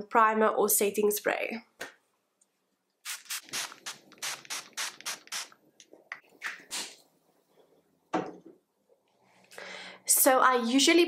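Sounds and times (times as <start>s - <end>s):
pump spray bottle hissing: 3.0s - 5.6s.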